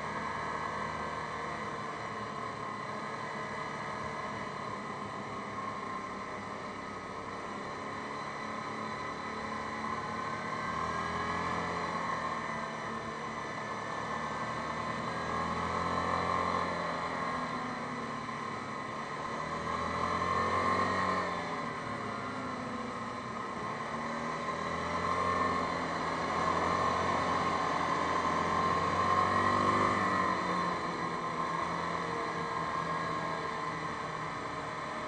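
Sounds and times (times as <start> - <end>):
atv engine revving: 19.2 - 23.0, 23.6 - 35.0.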